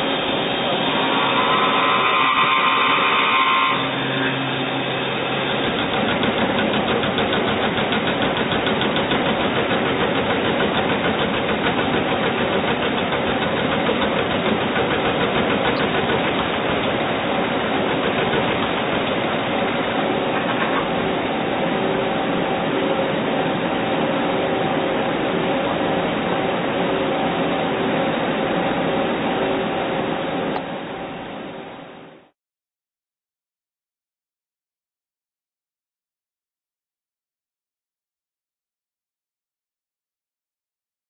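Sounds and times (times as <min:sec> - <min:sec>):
lathe running: 0:00.0 - 0:30.4.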